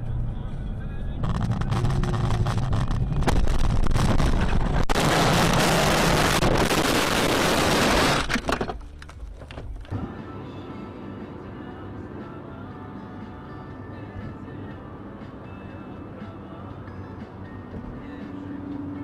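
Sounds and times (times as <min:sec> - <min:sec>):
low engine drone: 0:00.0 - 0:08.6
loud crash noise: 0:01.2 - 0:08.7.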